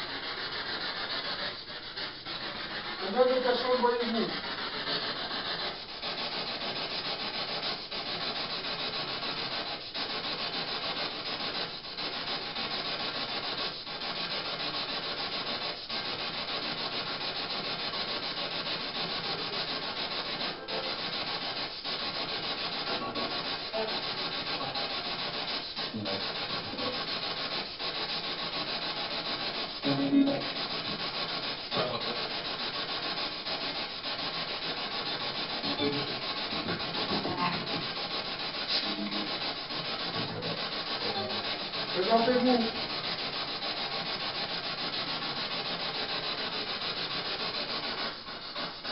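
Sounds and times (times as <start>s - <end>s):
steady hiss: 0.0s - 48.9s.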